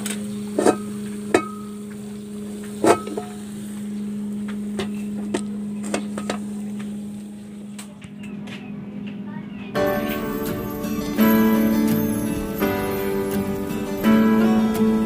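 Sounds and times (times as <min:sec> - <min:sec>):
low hum: 0:00.0 - 0:09.1.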